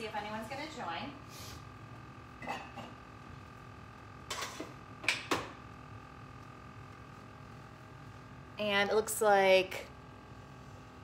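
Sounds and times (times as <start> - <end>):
faint steady hum: 0.0 - 11.0
kitchen items clicking and scraping: 4.3 - 5.3.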